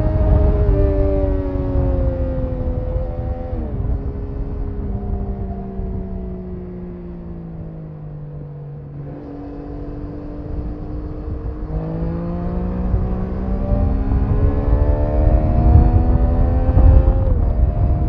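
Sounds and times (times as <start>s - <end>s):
motorcycle engine revving up: 8.9s - 18.0s.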